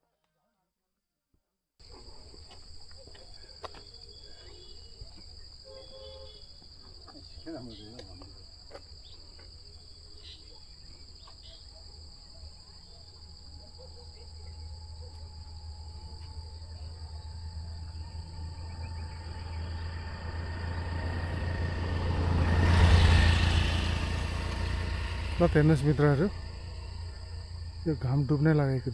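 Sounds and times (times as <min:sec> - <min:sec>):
insects droning: 0:01.8 - 0:28.9
vehicle passing with rumble: 0:14.6 - 0:28.9.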